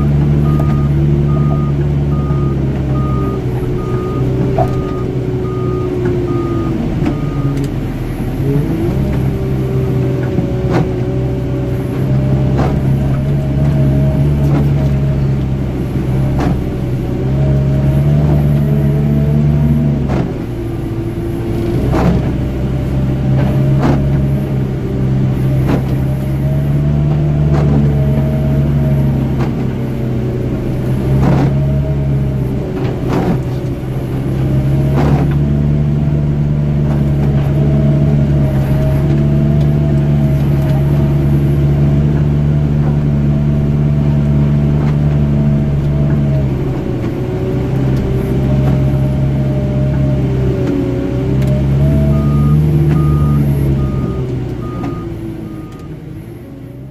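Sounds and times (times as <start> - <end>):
backup alarm beeping: 0.0 - 7.6, 51.8 - 55.9
diesel engine running: 0.0 - 56.9.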